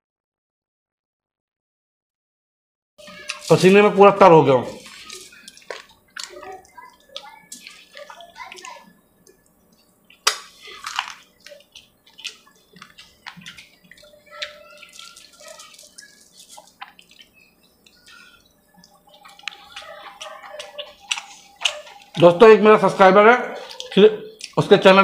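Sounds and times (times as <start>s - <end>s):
man chewing food: 3.0s - 4.0s, 4.6s - 24.8s
wet mouth smacks and clicks: 10.1s - 14.0s, 20.6s - 22.0s, 23.7s - 24.6s.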